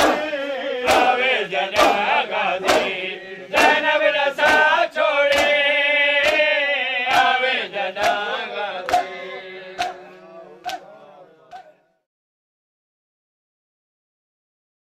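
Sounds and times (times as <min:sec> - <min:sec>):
hands slapping bare chests: 0:00.0 - 0:00.3, 0:00.9 - 0:03.0, 0:03.6 - 0:05.6, 0:06.2 - 0:07.4, 0:08.0 - 0:09.2, 0:09.8 - 0:10.0, 0:10.6 - 0:10.9
men chanting in unison: 0:00.0 - 0:12.0.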